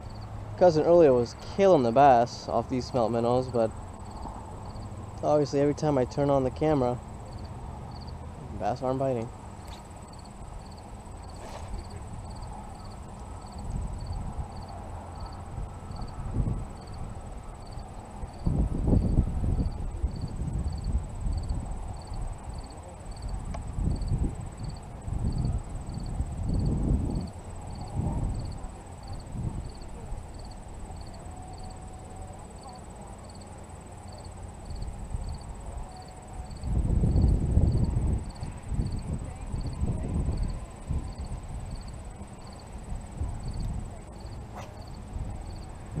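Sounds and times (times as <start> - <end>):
faint high insect chirp: 0.0 - 46.0
wind buffeting microphone: 9.2 - 31.8, 34.5 - 46.0.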